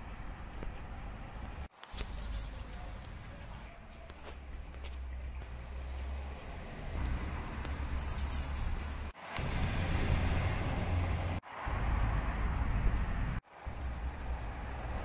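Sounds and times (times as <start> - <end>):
small birds chirping: 0.0 - 6.3, 7.6 - 9.2, 10.6 - 11.3.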